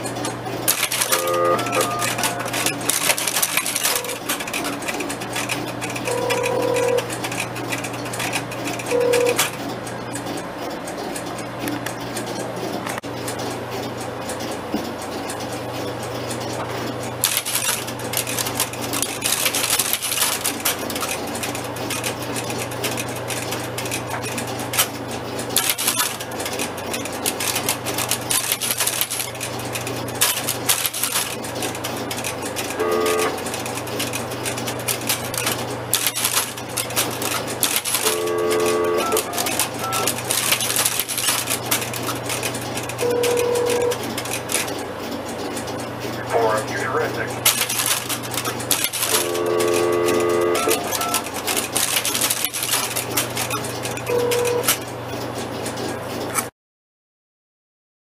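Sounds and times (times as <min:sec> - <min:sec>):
electrical hum: 0:00.0 - 0:56.3
relays clicking and clattering: 0:00.0 - 0:56.5
short telephone tones: 0:01.1 - 0:02.6, 0:32.8 - 0:33.4, 0:49.2 - 0:51.2, 0:54.1 - 0:54.7.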